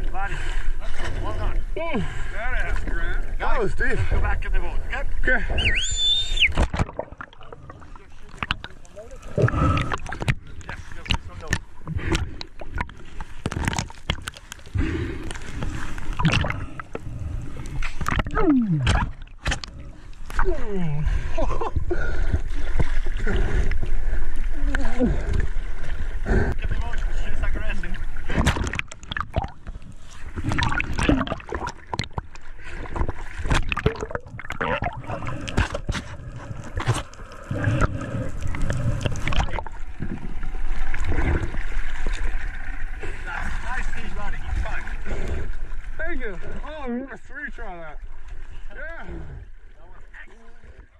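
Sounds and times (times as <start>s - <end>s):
water sloshing and splashing: 0.0s - 50.9s
bubbling gurgles: 5.5s - 47.0s
underwater clicks and knocks: 6.5s - 17.0s, 17.7s - 20.5s, 28.3s - 42.3s.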